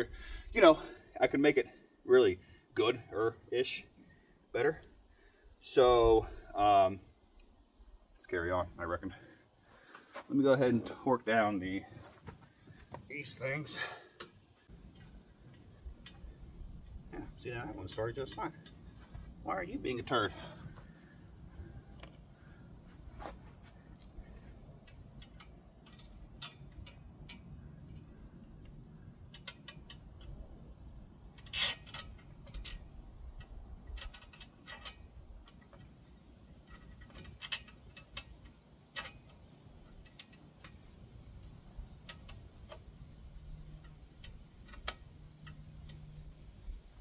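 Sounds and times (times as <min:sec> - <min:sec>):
ratchet wrench clicking: 0:24.8 - 0:28.1.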